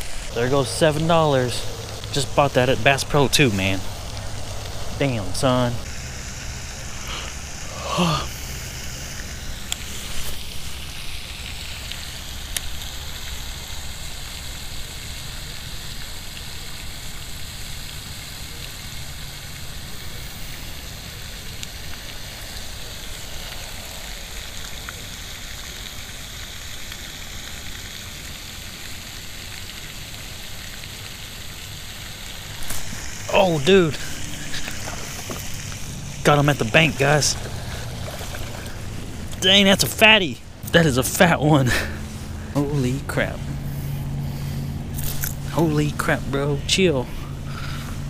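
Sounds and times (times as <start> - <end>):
low rumble: 0.0 - 6.0
fountain spray splashing: 0.0 - 48.0.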